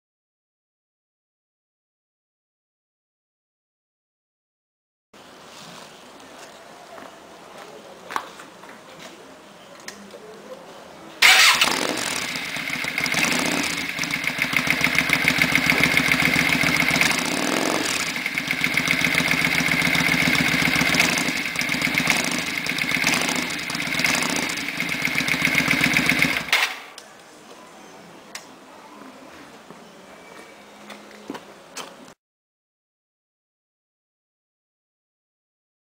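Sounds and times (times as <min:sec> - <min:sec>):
motorcycle engine revving: 0:11.2 - 0:26.9.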